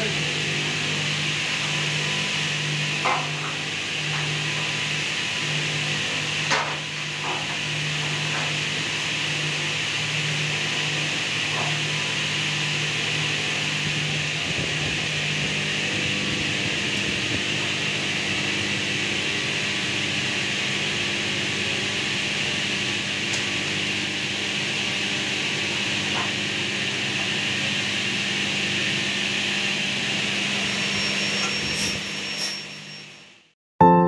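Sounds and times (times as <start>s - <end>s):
fan whooshing: 13.2s - 18.7s.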